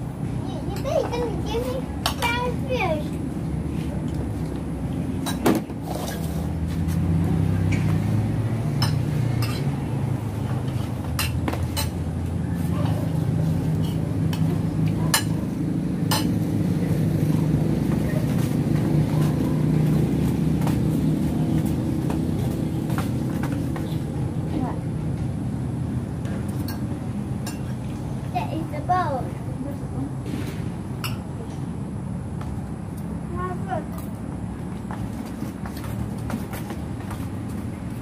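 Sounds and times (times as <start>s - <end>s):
cutlery clinking against plates: 8.8s - 9.7s, 10.7s - 12.0s, 15.1s - 15.4s, 16.1s - 16.4s, 27.4s - 27.7s.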